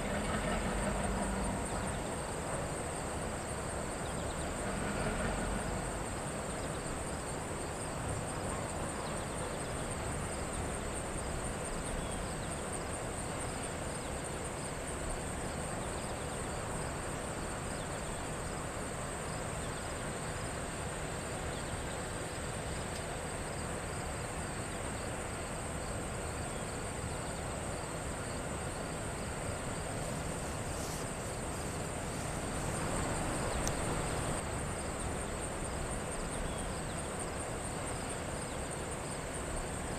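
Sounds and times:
low steady rumble: 0:00.0 - 0:07.1
insects chirping: 0:00.0 - 0:39.9
insects droning: 0:00.0 - 0:39.9.

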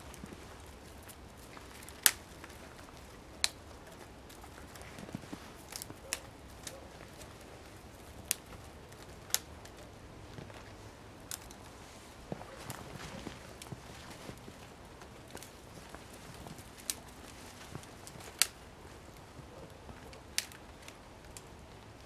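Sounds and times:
dry twigs snapping: 0:00.0 - 0:22.0.

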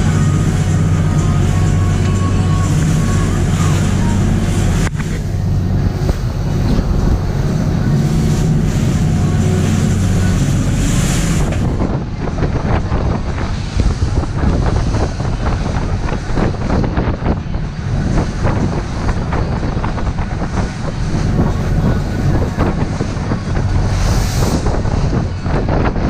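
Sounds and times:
boat engine running: 0:00.0 - 0:26.0
waves rushing along hull: 0:00.0 - 0:26.0
wind buffeting microphone: 0:00.0 - 0:26.0.

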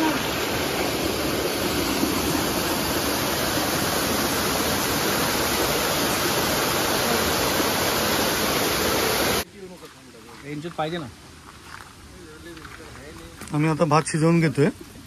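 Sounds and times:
waterfall pouring over rocks: 0:00.0 - 0:09.5.

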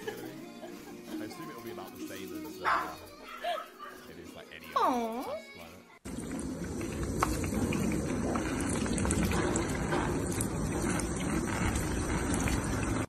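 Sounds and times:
water running and splashing: 0:06.0 - 0:13.0.

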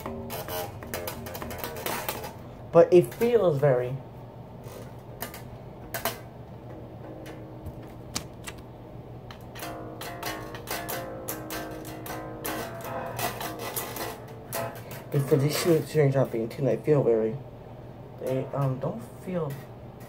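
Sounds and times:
bass strings plucked: 0:00.0 - 0:03.4, 0:09.2 - 0:16.2
handling clicks: 0:07.7 - 0:08.7.

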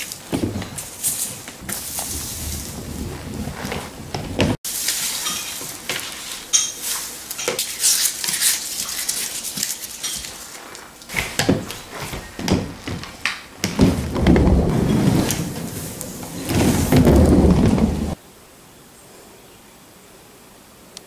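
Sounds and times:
roller skate wheels bumping on floor: 0:00.0 - 0:04.6, 0:11.1 - 0:18.2
broom sweeping a wooden floor: 0:00.0 - 0:18.2.

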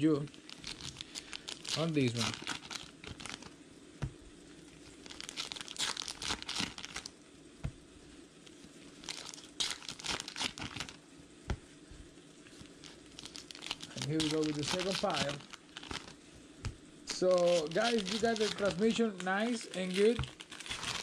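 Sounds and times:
wrapper crinkling and tearing: 0:00.3 - 0:03.6, 0:04.7 - 0:07.1, 0:08.9 - 0:11.0, 0:12.5 - 0:16.2, 0:17.1 - 0:21.0.

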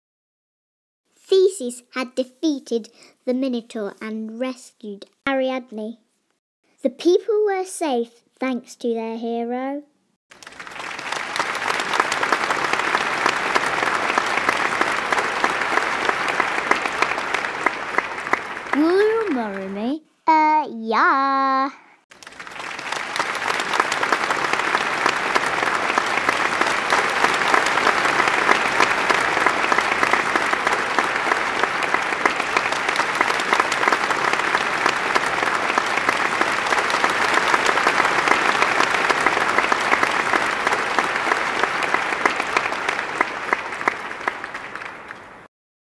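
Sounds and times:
crowd applause: 0:10.3 - 0:19.9, 0:22.1 - 0:45.5.

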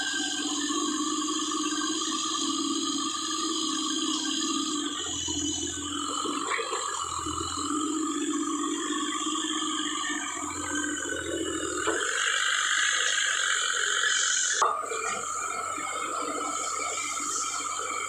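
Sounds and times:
mini excavator engine running: 0:00.0 - 0:18.0.

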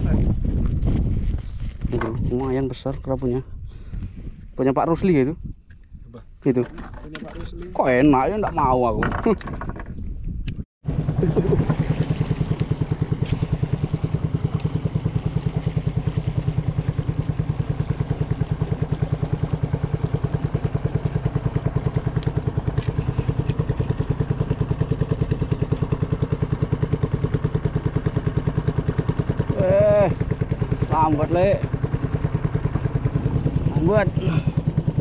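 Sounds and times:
small boat engine running: 0:10.8 - 0:35.0.

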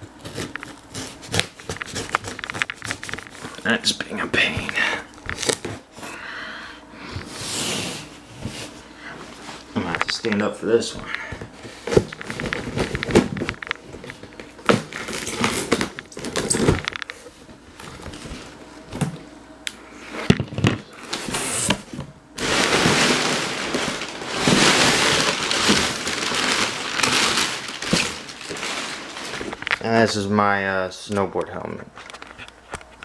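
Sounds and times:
cardboard box rustling: 0:22.4 - 0:29.8.

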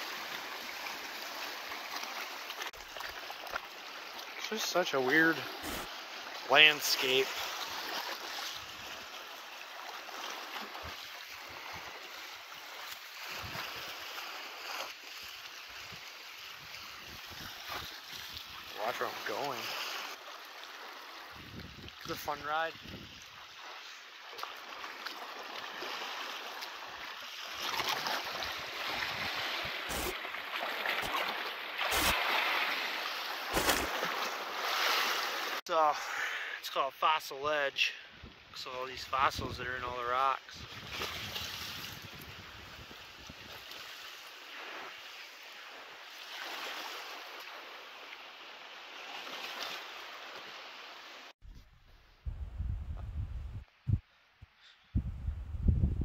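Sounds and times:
waves lapping against rock: 0:00.0 - 0:35.6, 0:40.6 - 0:51.3
wind bumps on microphone: 0:22.8 - 0:23.1, 0:40.6 - 0:43.6, 0:51.4 - 0:54.0, 0:54.9 - 0:56.0.

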